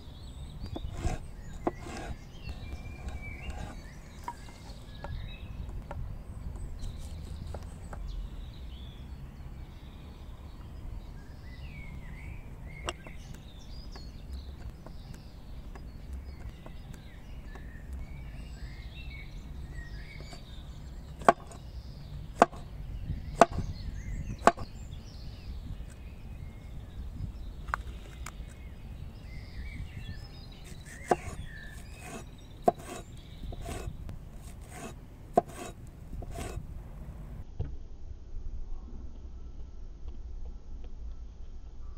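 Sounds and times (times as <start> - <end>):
faint bird chirping: 0.0 - 37.4
cleaver chopping on wooden board: 0.7 - 4.4, 12.8 - 13.2, 21.2 - 21.6, 22.3 - 22.7, 23.3 - 23.7, 24.4 - 24.7, 30.6 - 36.6
low rumble: 36.1 - 41.9.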